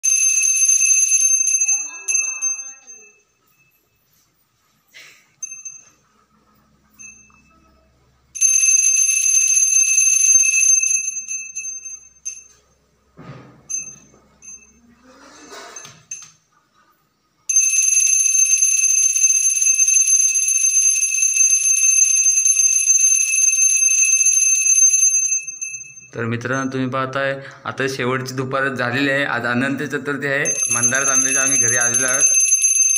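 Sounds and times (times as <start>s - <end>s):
small brass hand bell ringing: 5.4s - 6.0s, 13.7s - 14.9s
hand bell ringing rapidly: 30.5s - 32.9s.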